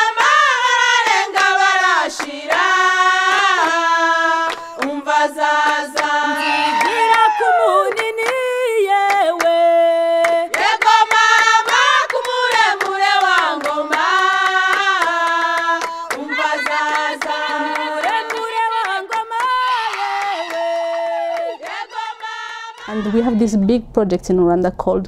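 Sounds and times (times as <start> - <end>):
hand claps: 0.2 - 0.4, 1.1 - 2.7, 4.4 - 5.0, 5.6 - 6.2, 6.8 - 8.4, 9.0 - 9.6, 10.2 - 22.9
person singing: 3.3 - 10.6, 12.8 - 23.5.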